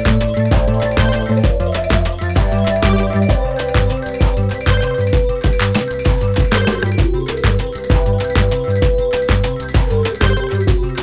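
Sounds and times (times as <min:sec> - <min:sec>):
electronic beat music: 0:00.0 - 0:11.0.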